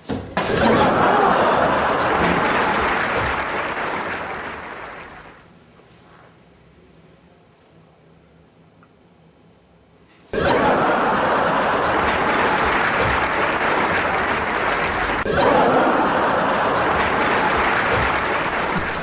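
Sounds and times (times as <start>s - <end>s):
room hum: 0.0s - 19.0s
audience laughing and applauding: 0.4s - 5.4s, 10.4s - 19.0s.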